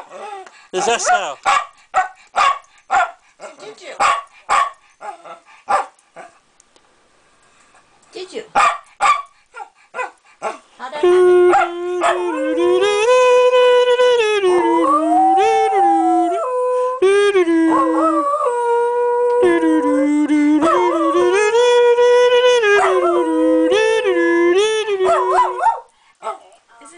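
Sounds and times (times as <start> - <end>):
dog howling: 11.3 - 12.9, 20.6 - 21.5, 22.6 - 24.0, 24.9 - 25.9.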